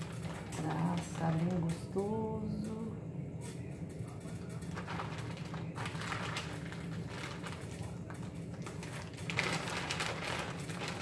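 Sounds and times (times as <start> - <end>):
plastic bag crinkling: 0.0 - 1.8, 4.2 - 11.0
steady low hum: 0.0 - 11.0.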